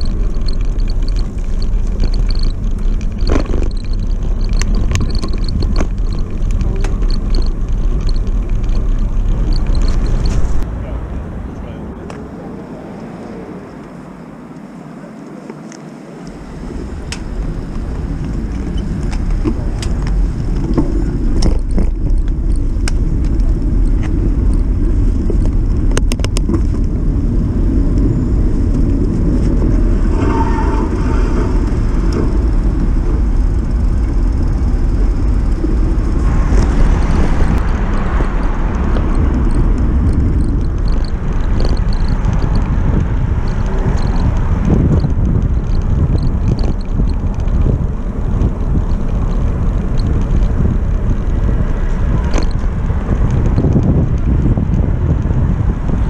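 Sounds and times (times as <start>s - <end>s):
wind and road noise: 0.0s - 56.0s
sharp clicks: 36.5s - 47.8s.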